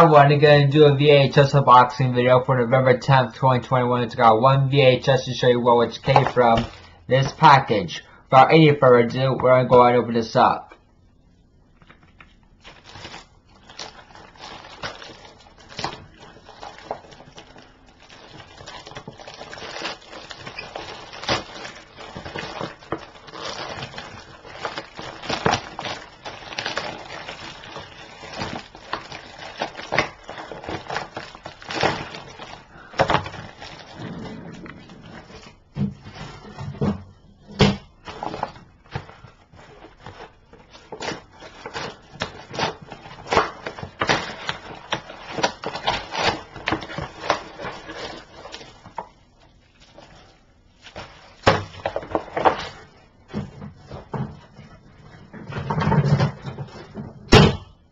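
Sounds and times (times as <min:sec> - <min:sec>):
plastic bag crinkling: 0:11.9 - 0:36.6, 0:37.9 - 0:54.8.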